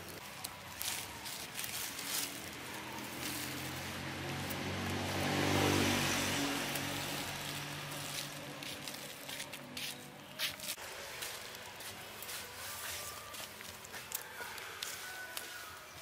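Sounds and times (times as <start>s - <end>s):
vehicle passing by: 0.4s - 9.9s.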